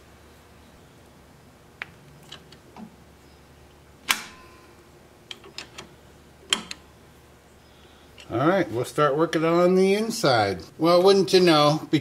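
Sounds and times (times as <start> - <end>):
handling knocks and clicks: 5.2 - 5.9, 6.5 - 6.8.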